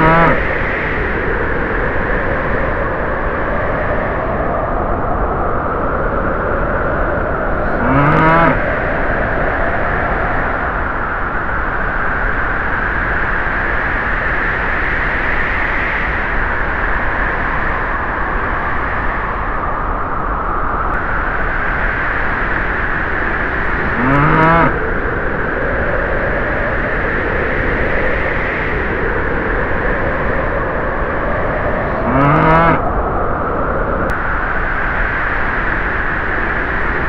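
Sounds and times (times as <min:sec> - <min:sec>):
cow mooing: 0:00.0 - 0:00.4, 0:07.5 - 0:08.6, 0:23.7 - 0:24.8, 0:31.7 - 0:32.8.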